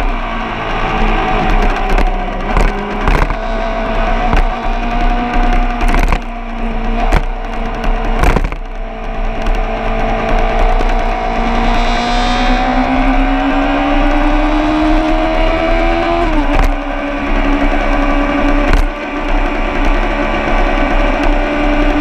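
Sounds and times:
sharp cracks: 0:00.0 - 0:11.6
vehicle engine revving: 0:00.0 - 0:22.0.

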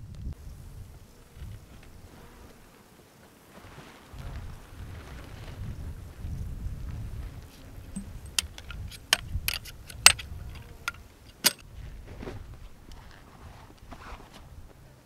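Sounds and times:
wind rumble on microphone: 0:00.0 - 0:02.6, 0:04.1 - 0:15.0
metal tent poles clicking: 0:08.0 - 0:11.6.

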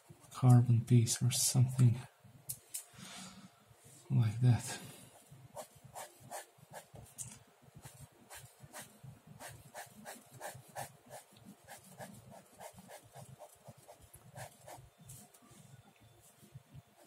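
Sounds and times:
ballpoint pen scratching paper: 0:07.8 - 0:14.8.

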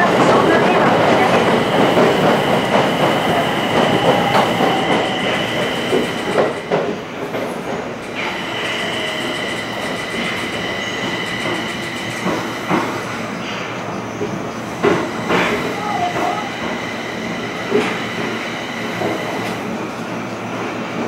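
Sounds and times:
clacks over rail joints: 0:00.0 - 0:08.3, 0:09.4 - 0:13.0, 0:14.2 - 0:16.8
train wheels rumbling on rail: 0:00.0 - 0:21.0.

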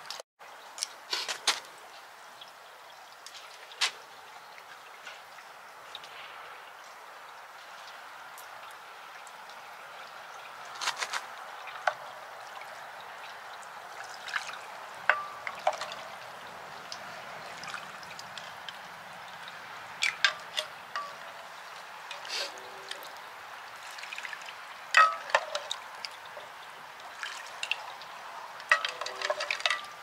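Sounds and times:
metal ladle clinking on pots: 0:15.1 - 0:16.1, 0:20.0 - 0:21.5, 0:25.0 - 0:25.8, 0:28.7 - 0:30.0.

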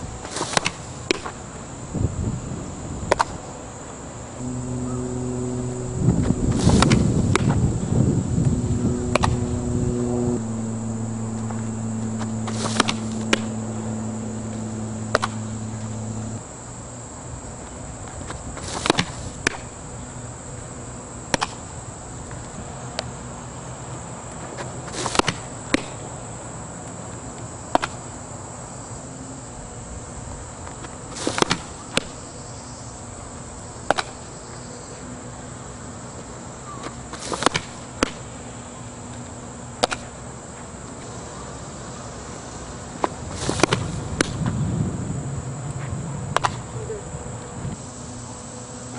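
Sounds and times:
insects buzzing: 0:04.4 - 0:16.4
low steady hum: 0:04.4 - 0:16.4.

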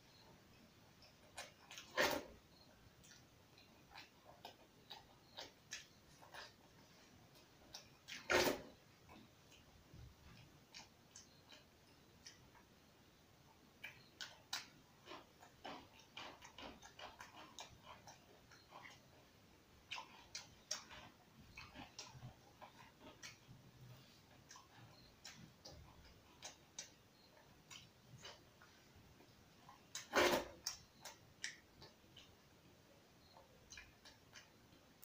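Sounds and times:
chewing: 0:00.9 - 0:12.7, 0:13.5 - 0:32.6, 0:33.2 - 0:35.0.

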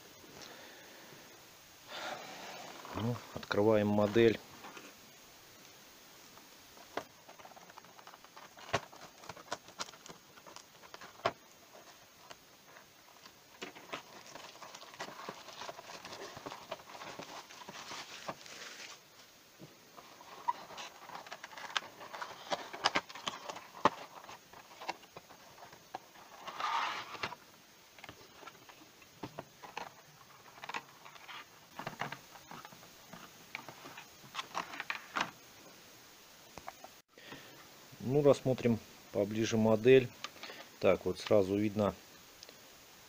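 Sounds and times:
cellophane wrap crinkling: 0:06.9 - 0:19.3, 0:19.9 - 0:27.4.

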